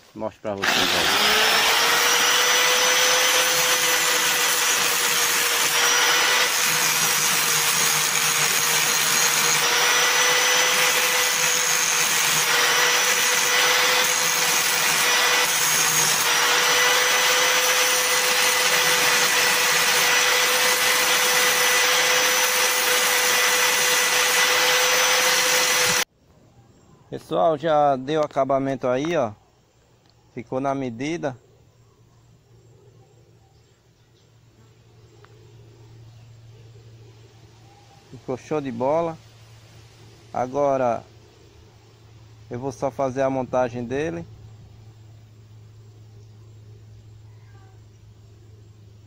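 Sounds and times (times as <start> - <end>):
angle grinder grinding metal: 0.6 - 26.1.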